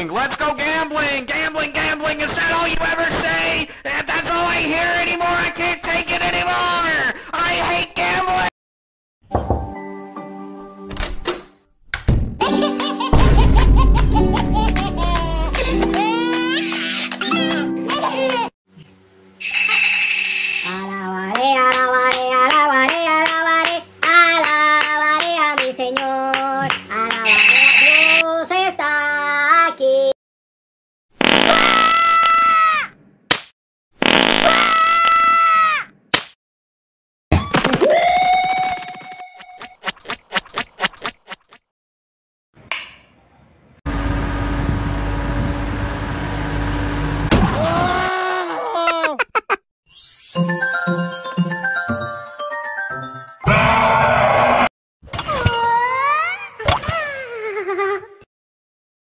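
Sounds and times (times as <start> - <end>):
sharp hit: 13.2 - 15.1.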